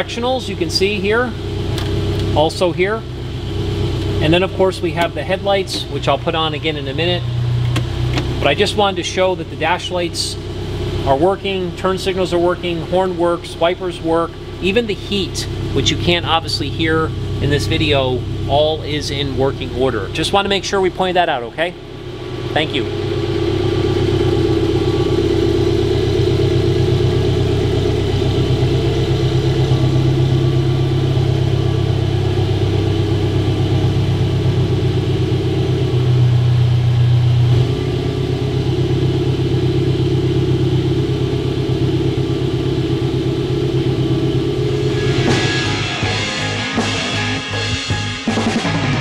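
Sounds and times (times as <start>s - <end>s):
car engine idling: 0.0s - 48.9s
music: 44.9s - 49.0s.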